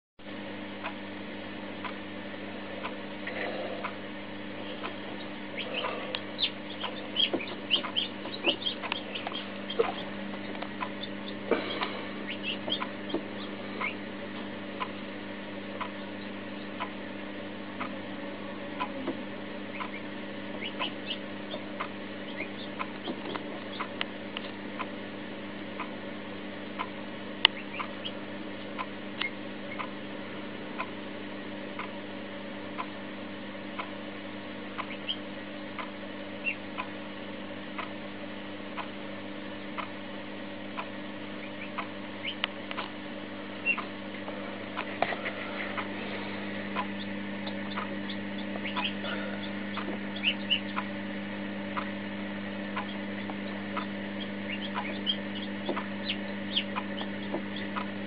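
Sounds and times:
steady low hum: 0.2s - 58.0s
chick peeping: 2.8s - 17.0s, 17.8s - 24.9s, 26.7s - 29.9s, 34.7s - 36.9s, 40.8s - 42.9s, 43.5s - 51.0s, 52.6s - 58.0s
beak pecking at eggshell: 4.6s - 15.1s, 19.7s - 24.6s, 46.7s - 51.0s, 52.8s - 58.0s.

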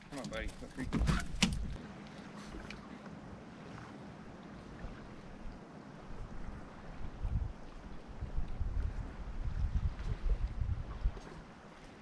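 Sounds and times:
wind buffeting microphone: 3.2s - 12.0s.

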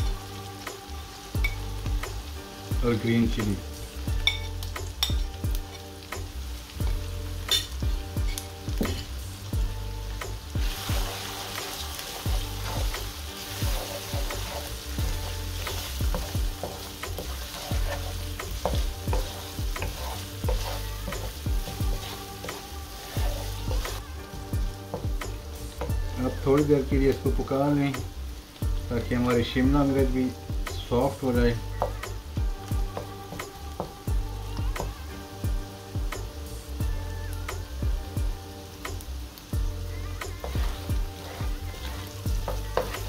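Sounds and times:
vegetables frying in oil: 0.0s - 43.0s
wooden spoon scraping a wok: 4.2s - 9.3s, 10.5s - 27.5s, 40.3s - 43.0s
spoon knocking on pan: 15.7s - 23.9s, 40.4s - 43.0s.

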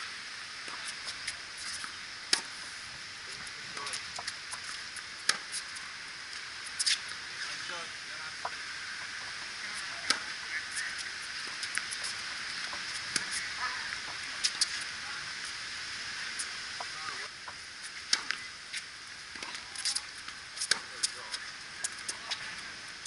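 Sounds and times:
steady hiss: 0.0s - 23.0s
tennis ball struck by racquets: 10.0s - 10.4s, 20.6s - 21.2s
tennis ball bouncing on court: 10.0s - 10.5s, 20.6s - 21.2s.

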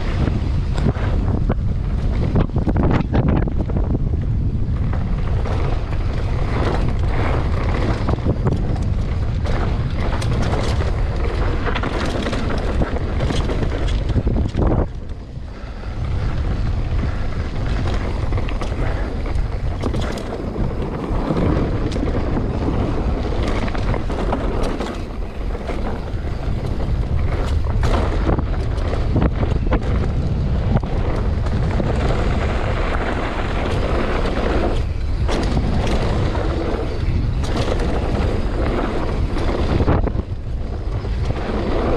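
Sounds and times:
mountain bike rattling downhill: 0.0s - 41.9s
wind buffeting microphone: 0.0s - 41.9s
bike knocking over bumps: 17.6s - 40.0s.

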